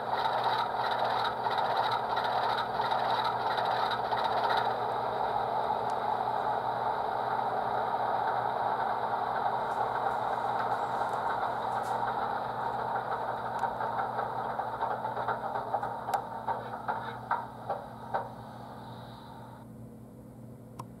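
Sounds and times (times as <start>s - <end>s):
sharp ticks and clanks: 0.0s - 5.0s, 9.7s - 18.4s
simulated diesel locomotive engine: 0.0s - 21.0s.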